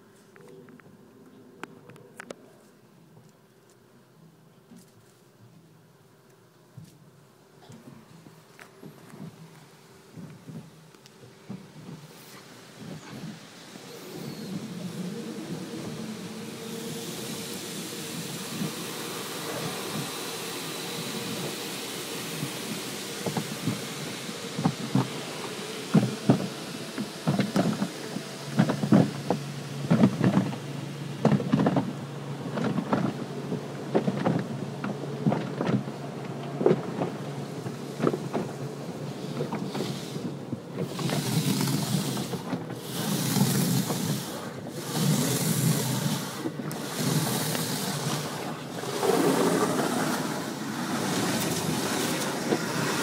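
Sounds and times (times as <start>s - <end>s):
high-pressure water spray: 12.0s - 53.0s
water thumping on car roof: 22.4s - 53.0s.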